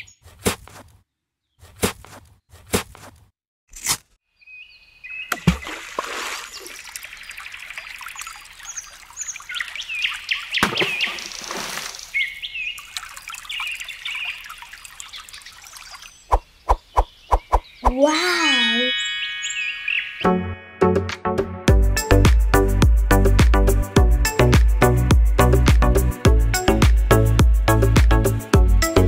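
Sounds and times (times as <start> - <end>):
birds chirping: 0.0 - 0.3, 4.4 - 21.0
water trickling: 5.4 - 16.3
wavering pitched tone: 18.2 - 21.4.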